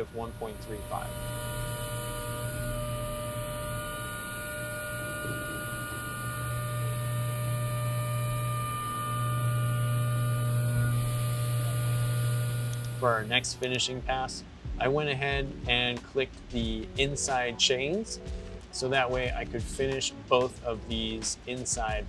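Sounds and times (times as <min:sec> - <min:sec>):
thin high tones: 0:00.0 - 0:13.8
machining spindle hum: 0:00.0 - 0:13.9.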